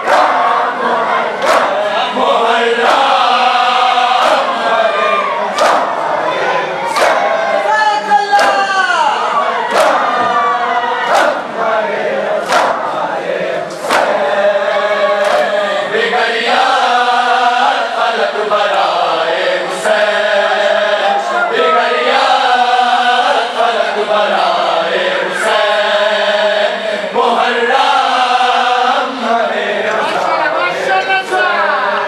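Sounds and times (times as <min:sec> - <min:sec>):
sharp slaps: 0:00.0 - 0:00.6, 0:01.4 - 0:02.0, 0:04.2 - 0:04.6, 0:05.5 - 0:06.2, 0:06.9 - 0:07.4, 0:08.3 - 0:08.8, 0:09.7 - 0:10.4, 0:11.1 - 0:11.5, 0:12.4 - 0:14.4, 0:15.2 - 0:15.6
crowd of men chanting a lament: 0:00.0 - 0:32.0.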